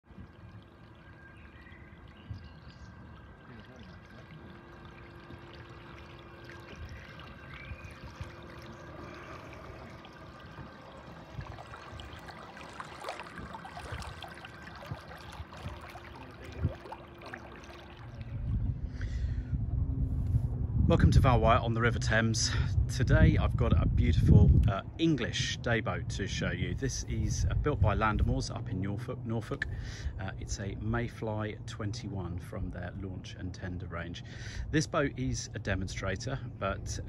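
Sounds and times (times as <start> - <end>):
light water splashes: 0.0 - 19.2
water lapping around boat hull: 0.0 - 19.5, 21.2 - 37.0
faint steady hum: 0.1 - 37.0.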